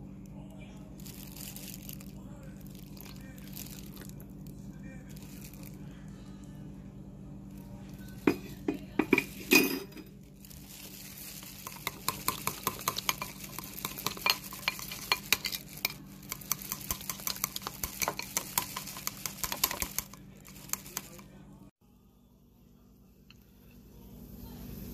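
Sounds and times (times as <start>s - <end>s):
chopsticks whisking batter in bowl: 10.5s - 21.3s.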